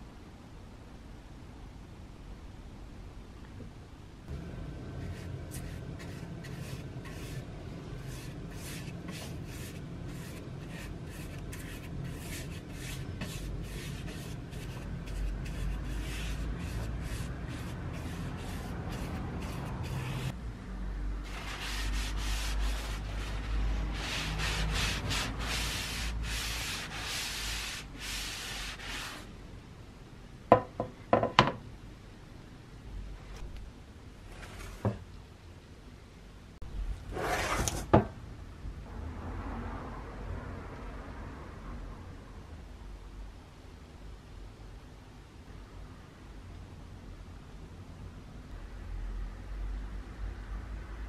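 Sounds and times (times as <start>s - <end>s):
brush strokes on wood: 4.8s - 20.4s, 21.3s - 29.3s.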